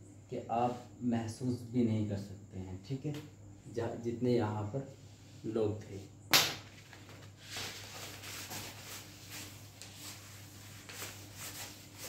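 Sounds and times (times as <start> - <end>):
cloth wiping whiteboard: 7.4 - 12.0.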